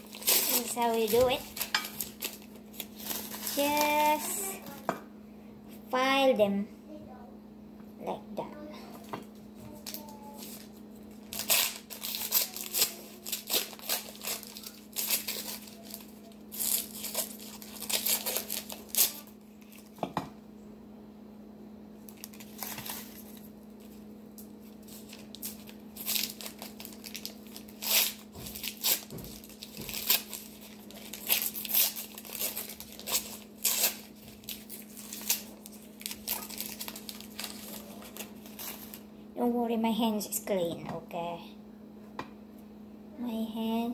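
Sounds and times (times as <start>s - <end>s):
paper wrappers crinkling: 0.0s - 4.9s, 9.7s - 20.0s, 22.0s - 39.0s
steady low hum: 0.0s - 43.9s.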